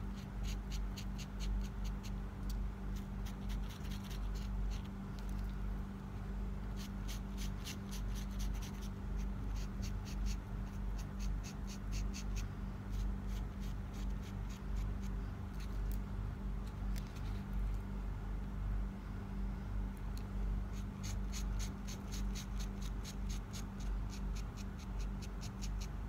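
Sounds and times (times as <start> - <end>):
marker tip scratching on resin: 0.0 - 5.3, 6.7 - 16.0, 20.7 - 26.0
steady low hum: 0.0 - 26.0.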